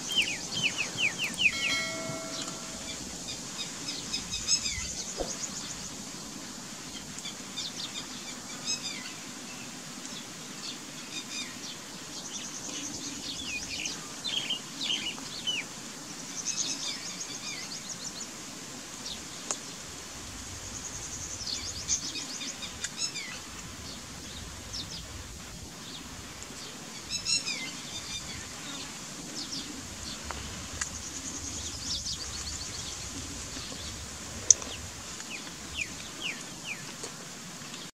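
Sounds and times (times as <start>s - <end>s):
lapwing calling: 0.0s - 4.9s
outdoor background noise: 0.0s - 37.9s.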